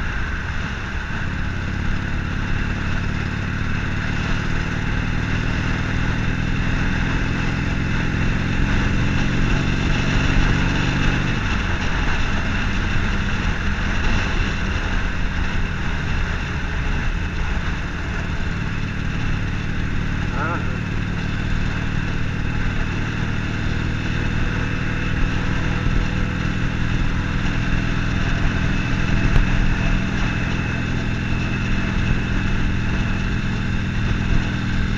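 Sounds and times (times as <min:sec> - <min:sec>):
motorcycle engine riding: 0:00.0 - 0:34.9.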